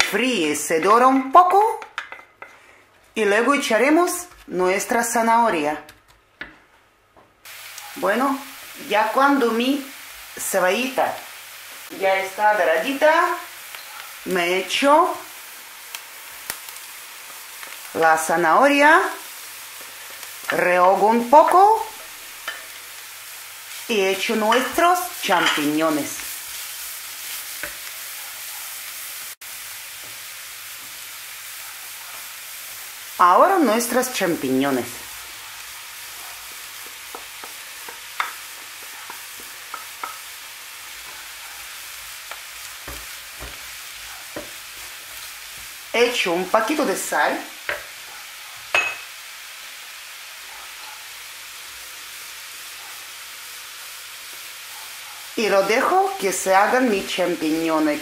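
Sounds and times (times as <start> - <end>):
vegetables sizzling in oil: 0.0 - 5.6, 7.4 - 58.0
wooden spoon stirring: 36.4 - 45.8.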